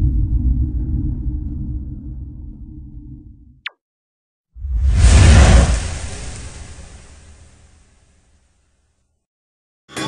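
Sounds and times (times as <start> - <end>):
heavy rumble: 0.0 - 3.6
whoosh and boom effect: 4.6 - 8.3.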